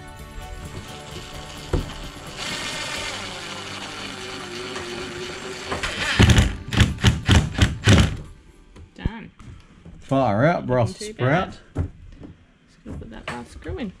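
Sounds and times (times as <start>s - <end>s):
cordless driver whirring: 0.7s - 8.2s
driver short loud bursts: 1.0s - 8.2s.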